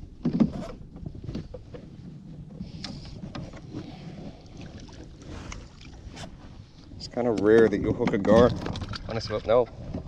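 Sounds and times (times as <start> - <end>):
wind buffeting microphone: 0.8 - 10.0.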